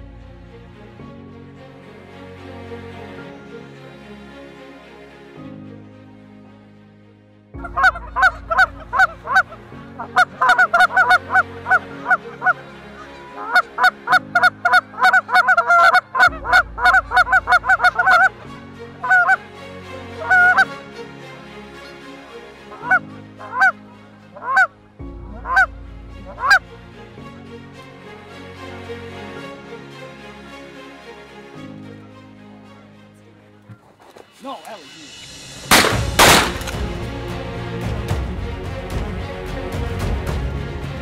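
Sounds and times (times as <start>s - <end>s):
low music drone: 0.0s - 33.6s, 34.6s - 41.0s
geese honking and clucking: 7.6s - 18.4s, 19.0s - 21.2s, 22.7s - 26.7s.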